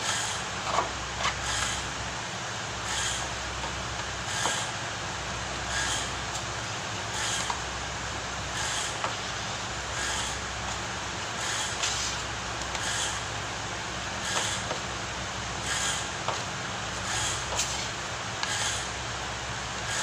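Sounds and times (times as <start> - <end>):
body shop hum: 0.0 - 20.0
spreader scraping filler: 11.4 - 13.2.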